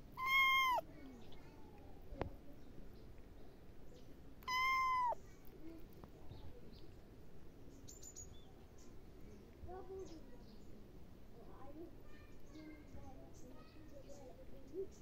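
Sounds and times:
kitten meowing: 0:00.1 - 0:00.8, 0:04.4 - 0:05.2.

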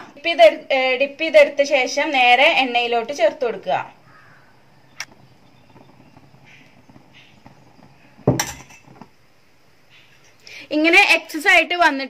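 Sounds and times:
hot oil hissing: 0:04.0 - 0:09.9.

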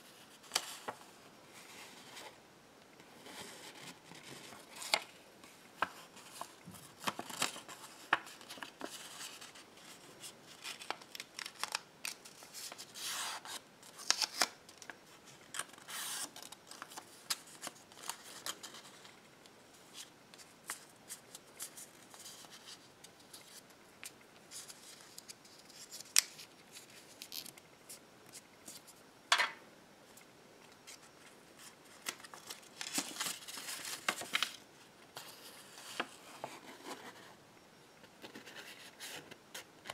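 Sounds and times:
paper crinkling and rustling: 0:03.2 - 0:19.2, 0:30.8 - 0:34.6, 0:35.2 - 0:37.3.

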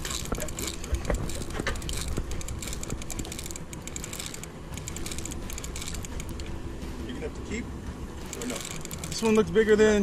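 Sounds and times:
fishing reel clicking: 0:00.0 - 0:06.5, 0:08.3 - 0:09.3.

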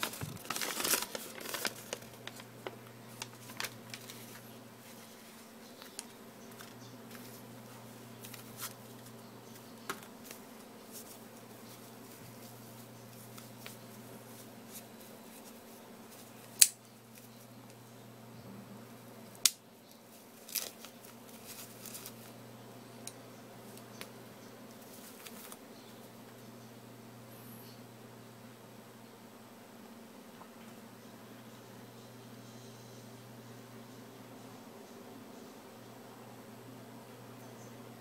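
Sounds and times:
steady low hum: 0:00.0 - 0:20.4, 0:21.0 - 0:38.0.

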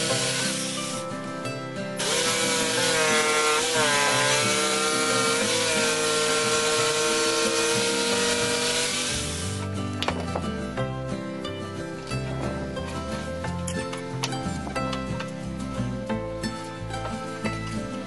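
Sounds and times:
electric jigsaw cutting wood: 0:00.0 - 0:01.0, 0:02.0 - 0:09.7.

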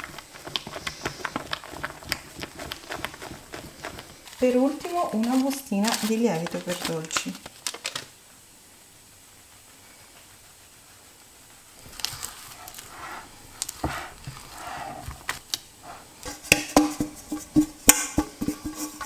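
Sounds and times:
spatula stirring batter: 0:00.0 - 0:07.4, 0:10.4 - 0:19.0
metal tin knocking on counter: 0:16.3 - 0:19.0.

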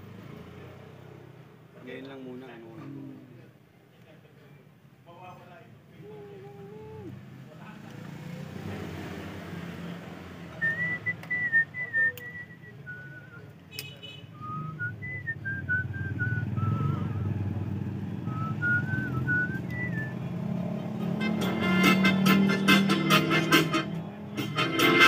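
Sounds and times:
person whistling a slow tune: 0:10.6 - 0:13.5, 0:14.4 - 0:17.3, 0:18.3 - 0:20.2
sharp click: 0:13.7 - 0:14.0
loud music with a beat: 0:21.3 - 0:25.0.

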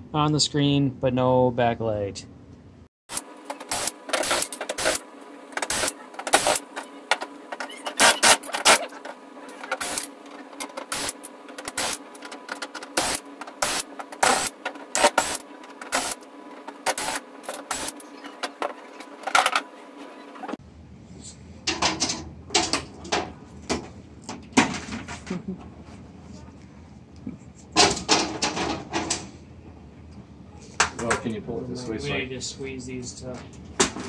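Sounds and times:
screws and plastic cover clattering: 0:05.6 - 0:19.7.

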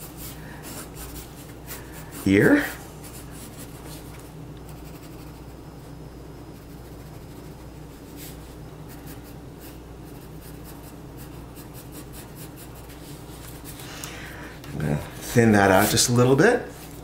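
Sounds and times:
pencil scratching on paper: 0:00.0 - 0:05.6, 0:06.6 - 0:13.8
steady low hum: 0:00.0 - 0:17.0.

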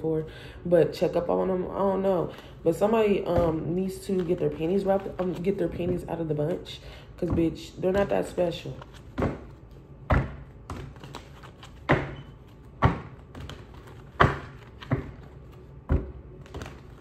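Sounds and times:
cards being shuffled: 0:10.6 - 0:17.0.

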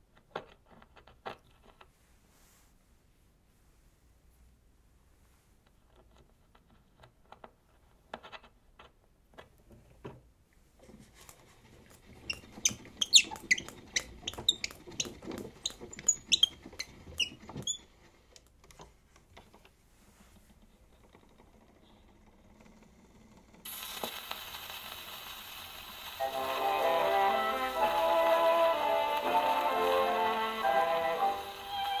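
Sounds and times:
gramophone tone arm squeaking: 0:12.2 - 0:17.9, 0:27.3 - 0:32.0.

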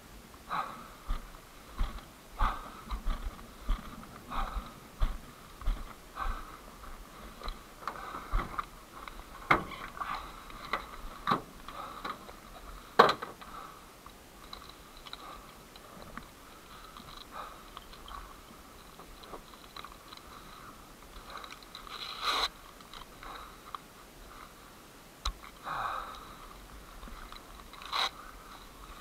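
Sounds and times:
footsteps on gravel: 0:01.1 - 0:07.6.

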